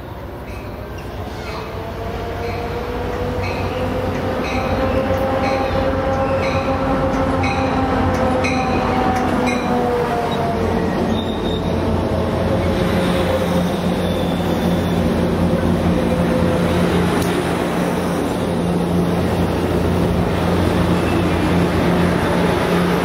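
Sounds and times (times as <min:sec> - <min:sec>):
train cars rumbling on rails: 0:00.0 - 0:23.0
train wheels squealing: 0:00.4 - 0:01.8, 0:10.3 - 0:11.9, 0:12.6 - 0:15.3, 0:20.9 - 0:21.5.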